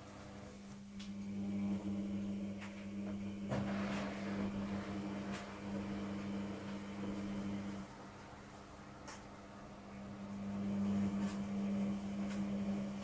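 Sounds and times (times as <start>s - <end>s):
washing machine motor humming: 0.0s - 13.0s.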